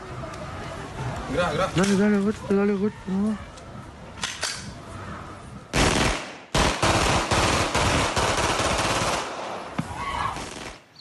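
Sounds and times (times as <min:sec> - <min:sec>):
automatic gunfire: 0:05.8 - 0:09.5.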